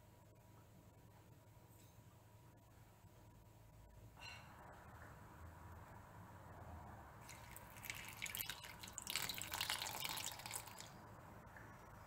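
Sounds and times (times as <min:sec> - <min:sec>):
water splashing into plate: 0:07.2 - 0:10.9.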